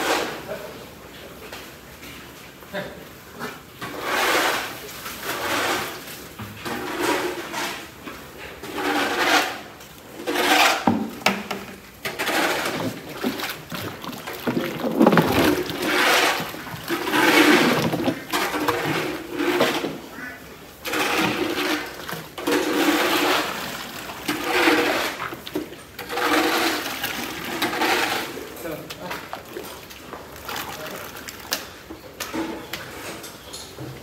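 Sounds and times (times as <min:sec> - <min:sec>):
wet feed sloshing in tank: 0:11.5 - 0:33.0.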